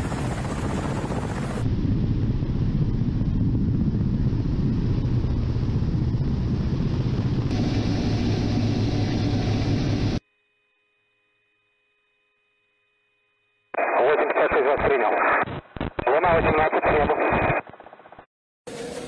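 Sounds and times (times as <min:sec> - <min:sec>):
helicopter rotors and engines droning: 0:00.0 - 0:10.2.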